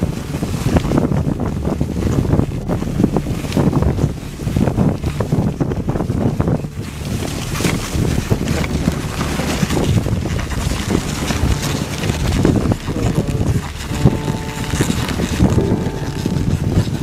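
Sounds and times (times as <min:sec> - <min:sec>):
wind rumbling on microphone: 0:00.0 - 0:17.0
sled rushing across snow: 0:07.0 - 0:17.0.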